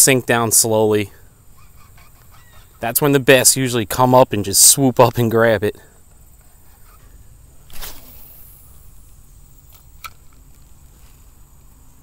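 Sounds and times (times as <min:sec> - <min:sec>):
faint outdoor background: 0:00.0 - 0:12.0
fishing rod swish: 0:07.7 - 0:08.7.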